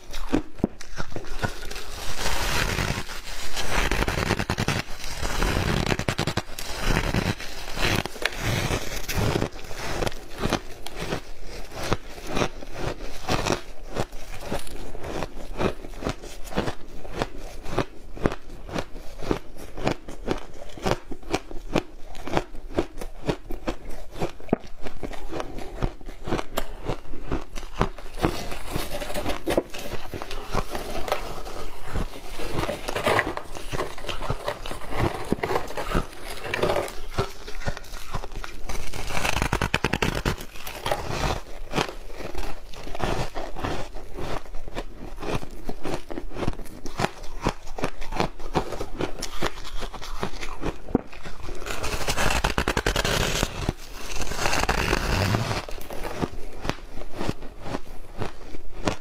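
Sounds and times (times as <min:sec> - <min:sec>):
gloved hands crumbling ice: 0:00.0 - 0:10.7
ice being chewed: 0:00.0 - 0:59.0.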